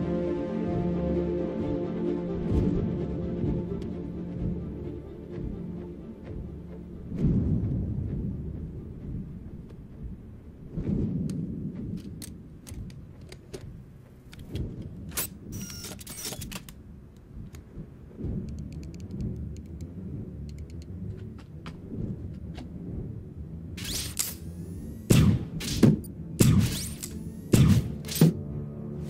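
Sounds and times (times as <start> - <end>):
low rumbling drone: 0.0 - 12.6, 16.9 - 29.0
digital timer ticks: 18.5 - 19.9, 20.5 - 20.9
gadget clicks and metallic clacks: 23.8 - 24.5, 25.6 - 28.4
bright whirr: 23.8 - 25.8.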